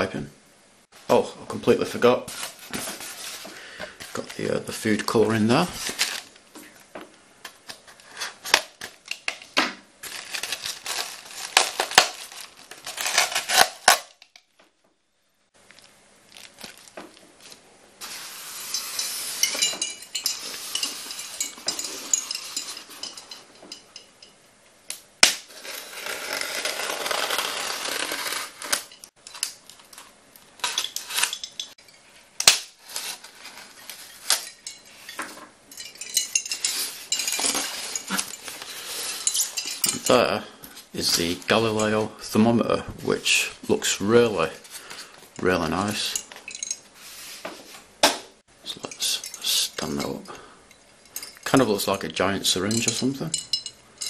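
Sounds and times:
foam rubbing and scraping: 0:25.5 - 0:28.9.

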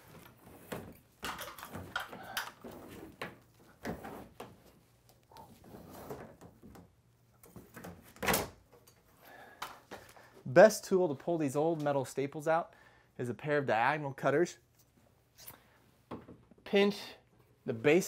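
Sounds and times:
cable rustling and scraping: 0:00.0 - 0:06.8.

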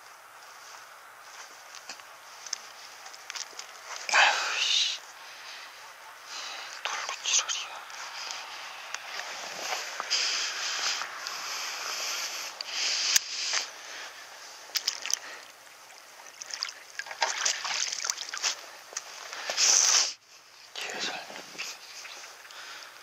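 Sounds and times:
water splashing and sloshing: 0:14.5 - 0:19.8.

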